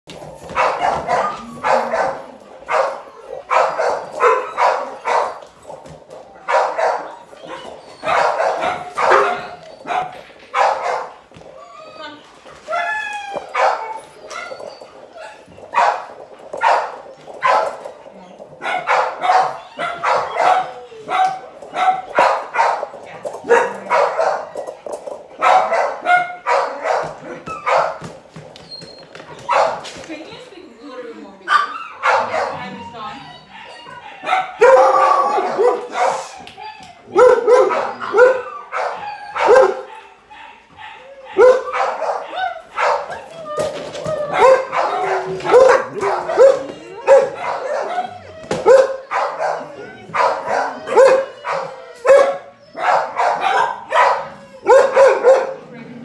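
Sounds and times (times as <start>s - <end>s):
dog barking: 0.5s - 5.4s, 6.4s - 11.2s, 13.5s - 14.6s, 15.7s - 17.8s, 18.6s - 24.6s, 25.4s - 28.0s, 29.5s - 29.8s, 31.5s - 32.7s, 34.1s - 36.3s, 37.1s - 43.2s, 44.3s - 55.7s.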